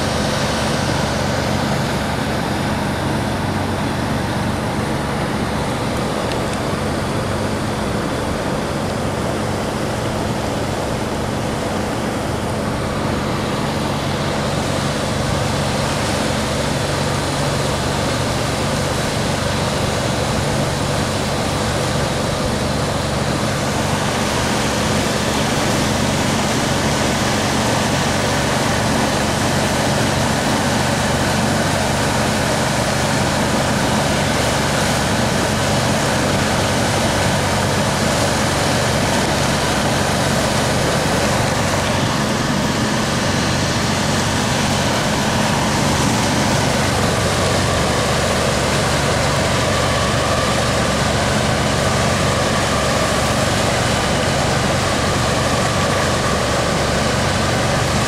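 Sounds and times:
engine drone: 0:00.0 - 0:58.0
water churning along boat hull: 0:00.0 - 0:58.0.

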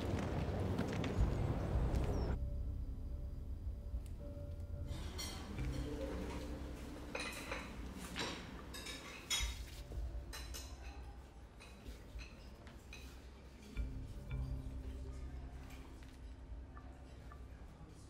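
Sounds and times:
low room rumble: 0:00.0 - 0:08.8
cups and cutlery clinking: 0:05.0 - 0:14.6.

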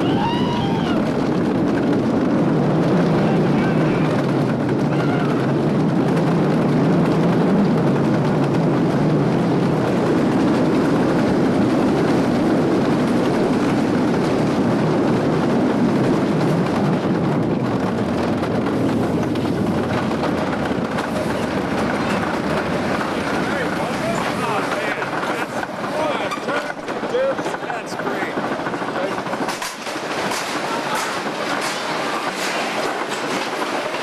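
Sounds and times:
roller coaster clattering on track: 0:00.0 - 0:34.0.

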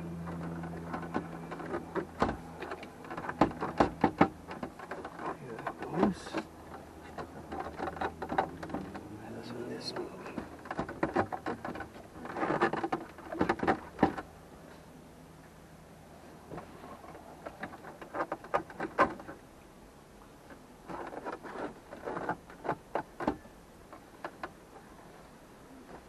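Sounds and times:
clicks and knocks of plastic trim: 0:00.3 - 0:09.1, 0:09.9 - 0:14.3.

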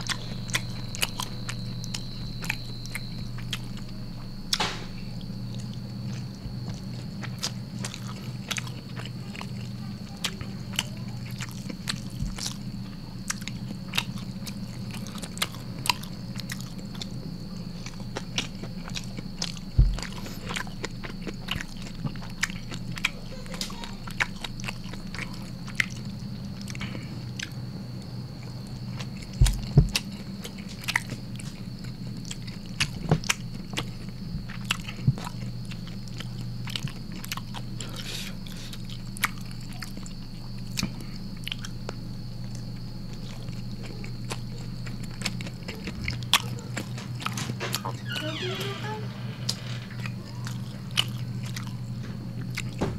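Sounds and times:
chewing and lip-smacking: 0:00.0 - 0:04.6, 0:05.2 - 0:48.0, 0:49.9 - 0:52.8
faint high whine: 0:00.0 - 0:08.3
steady low hum: 0:00.0 - 0:52.9.

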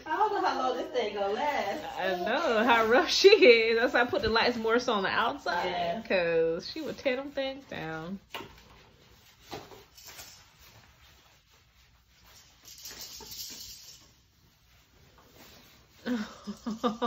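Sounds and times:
tent fabric rustling: 0:00.0 - 0:08.0, 0:08.8 - 0:16.6
person speaking: 0:00.0 - 0:08.2.

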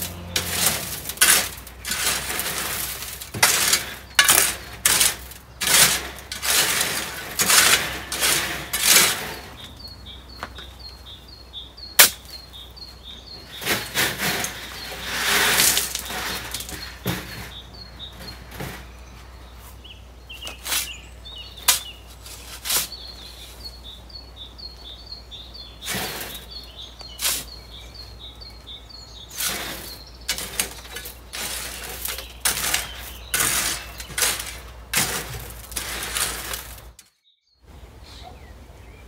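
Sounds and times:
sand pouring into metal wheelbarrow: 0:00.0 - 0:09.6, 0:13.5 - 0:17.6, 0:25.8 - 0:27.6, 0:29.3 - 0:37.0
shovel digging into sand: 0:00.0 - 0:09.6, 0:13.5 - 0:17.4, 0:20.5 - 0:21.0, 0:21.6 - 0:23.1, 0:25.8 - 0:27.6, 0:29.3 - 0:37.0
birds chirping: 0:00.0 - 0:39.0.

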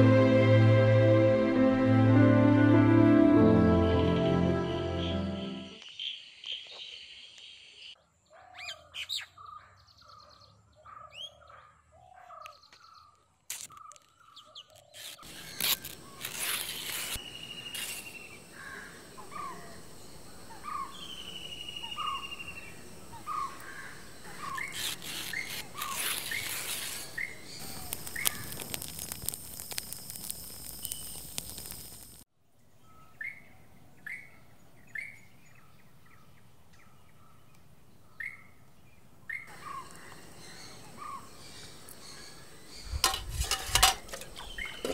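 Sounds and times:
birds calling: 0:05.8 - 0:28.6, 0:39.3 - 0:44.9
trilled bird calls: 0:05.8 - 0:28.6.

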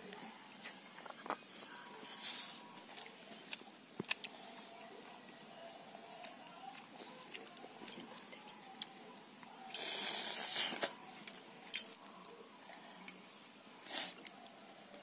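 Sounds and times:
children eating mouth clicks: 0:09.7 - 0:12.0
hiss: 0:13.8 - 0:14.2.

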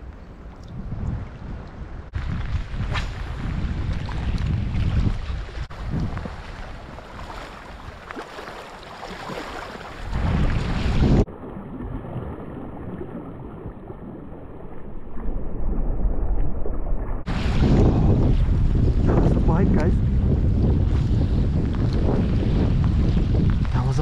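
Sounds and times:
wind buffeting microphone: 0:00.0 - 0:08.3, 0:09.2 - 0:24.0
small waves on stony shore: 0:02.1 - 0:15.3.

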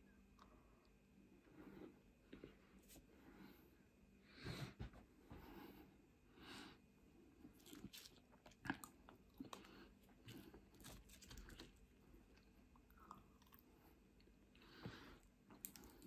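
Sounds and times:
chewing and crunching chips: 0:07.4 - 0:16.0.

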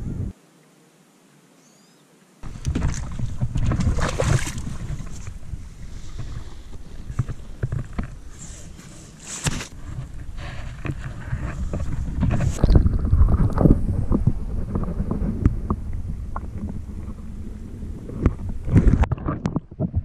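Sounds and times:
wind buffeting microphone: 0:00.0 - 0:00.3, 0:02.4 - 0:08.3, 0:09.7 - 0:20.0
small clicks and rustles: 0:06.1 - 0:13.8.

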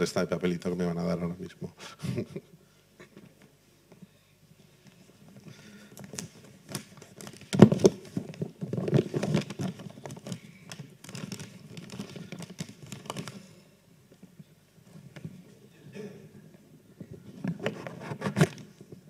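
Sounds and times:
paper rustling: 0:06.0 - 0:13.6, 0:17.3 - 0:19.0.

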